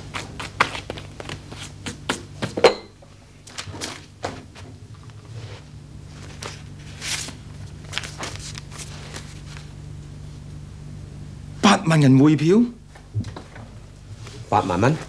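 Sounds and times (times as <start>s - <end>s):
faint steady hum: 0.0s - 15.0s
paper rustling: 5.4s - 9.7s.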